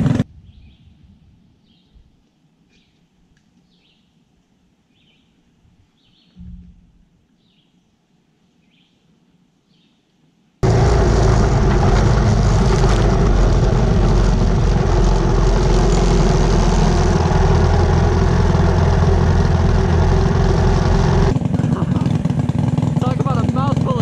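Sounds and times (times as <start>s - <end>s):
go-kart engines running: 10.6s - 24.0s
steady engine sound: 10.6s - 24.0s.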